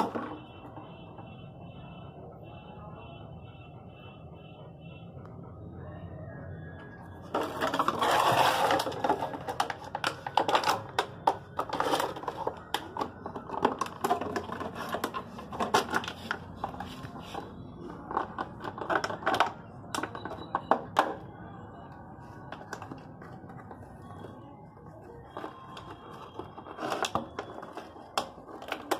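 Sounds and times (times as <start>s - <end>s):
dog chewing plastic bottle: 7.3s - 21.2s, 24.9s - 28.9s.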